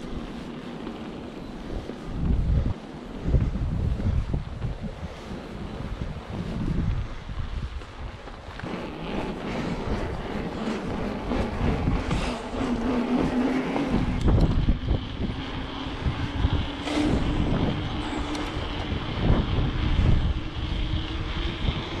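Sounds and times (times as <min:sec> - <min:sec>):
mountain bike rolling: 0:00.0 - 0:22.0
wind buffeting microphone: 0:00.0 - 0:22.0
steady hum rising in pitch: 0:08.6 - 0:22.0.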